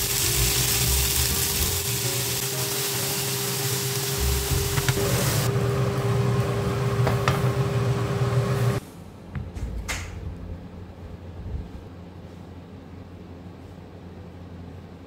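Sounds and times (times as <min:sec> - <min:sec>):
meat and vegetables sizzling in a pan: 0:00.0 - 0:05.6.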